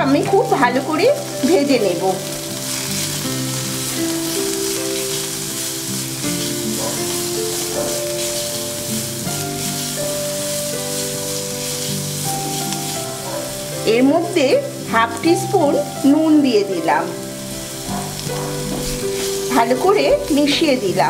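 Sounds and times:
background music: 0.0s - 21.0s
vegetables sizzling in hot oil: 0.0s - 21.0s
spatula stirring: 0.5s - 14.3s, 17.7s - 20.5s.

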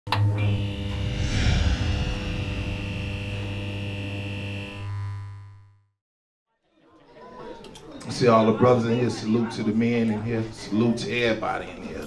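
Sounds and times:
low electric drone: 0.4s - 4.7s
shimmering swell: 0.8s - 3.9s
sustained high tone: 0.8s - 4.0s.

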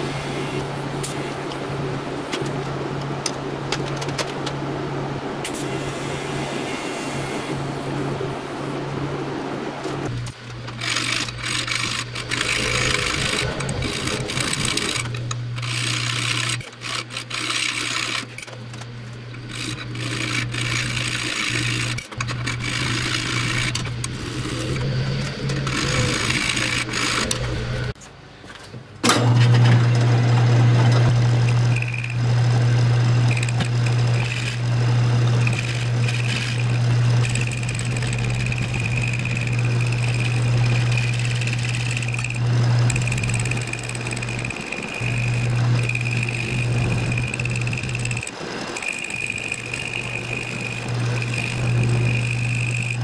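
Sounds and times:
loud steady hum: 0.0s - 28.0s, 29.1s - 53.0s
welding arc buzzing and crackling: 9.7s - 28.0s, 30.3s - 53.0s.

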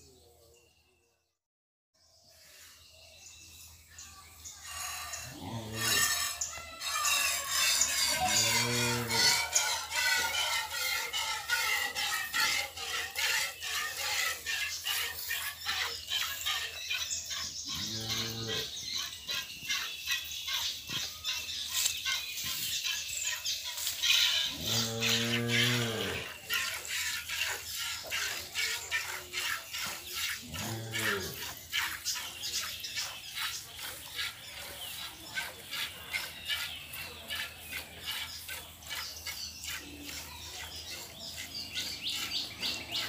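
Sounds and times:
cow mooing: 5.2s - 6.3s, 8.0s - 9.5s, 17.8s - 18.7s, 24.5s - 26.4s, 30.5s - 31.4s.

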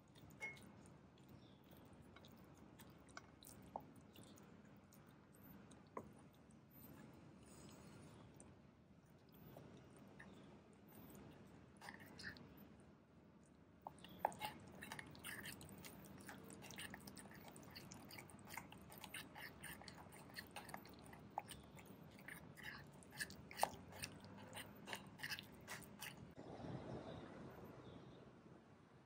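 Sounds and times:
paste squelching: 13.9s - 26.4s.

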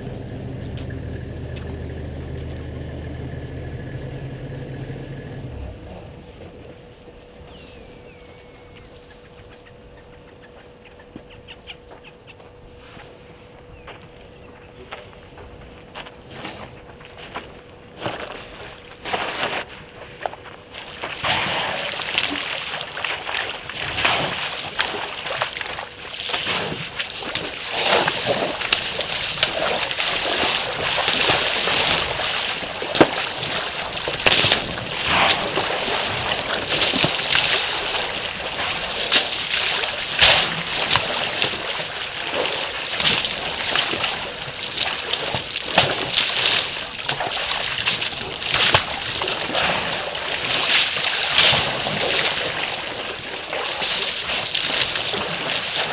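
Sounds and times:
water splashing and sloshing: 17.1s - 55.9s.

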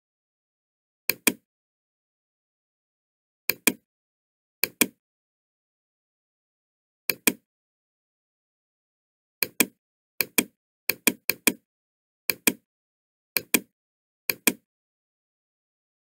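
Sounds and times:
mouse button clicking: 3.5s - 3.8s, 7.1s - 7.4s, 9.4s - 11.6s, 12.3s - 12.6s, 13.4s - 13.7s, 14.3s - 14.6s.

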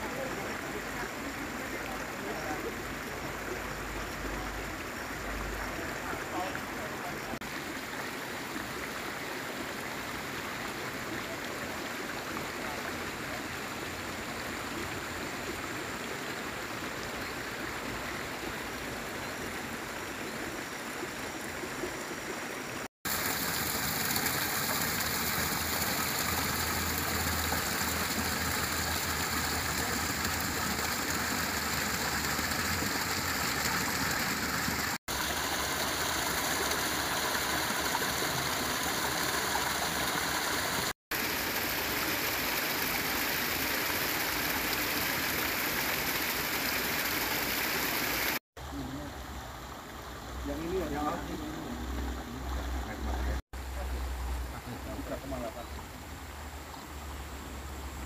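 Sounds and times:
water rushing over rocks: 20.8s - 53.7s.

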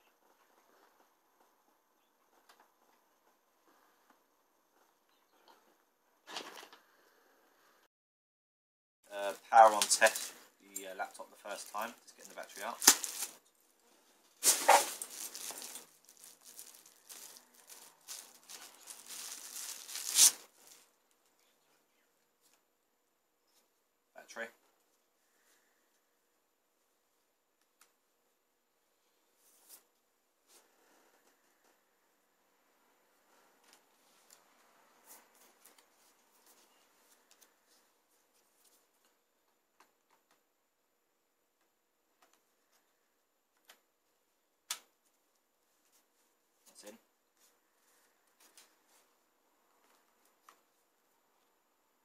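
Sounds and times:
plastic bag crinkling: 9.6s - 10.4s, 11.5s - 13.4s, 14.4s - 20.9s.

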